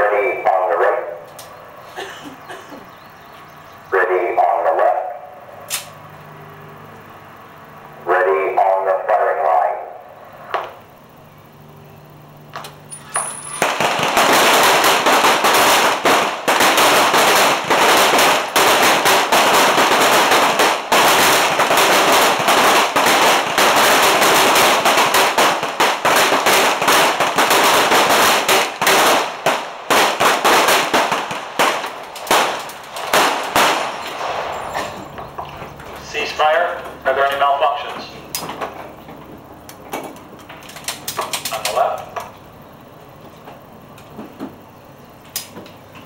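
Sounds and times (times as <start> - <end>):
pistol gunfire: 13.3 - 35.2.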